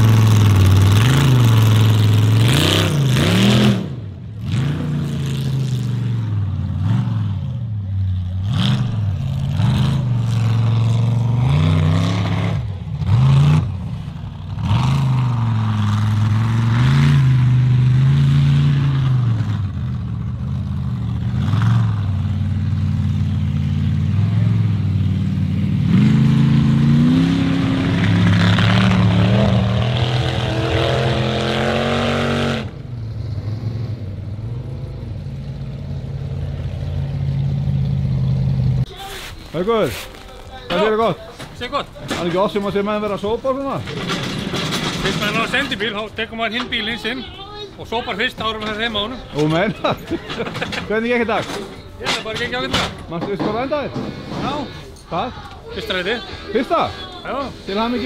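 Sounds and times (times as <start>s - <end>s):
racing engine revving: 0.0s - 38.8s.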